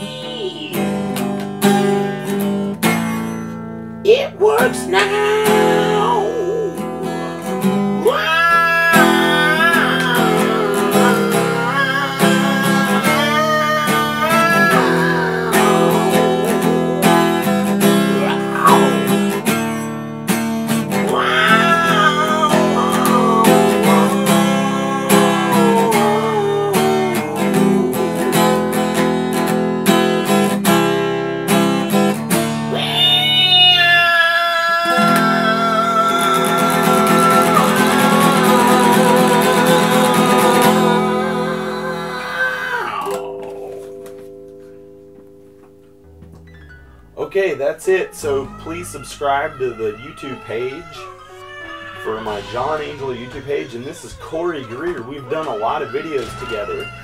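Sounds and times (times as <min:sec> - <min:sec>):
acoustic guitar strummed and picked: 0:00.0 - 0:34.2, 0:34.8 - 0:57.0
man singing: 0:04.1 - 0:19.9, 0:20.9 - 0:28.9, 0:32.7 - 0:43.3, 0:47.6 - 0:57.0.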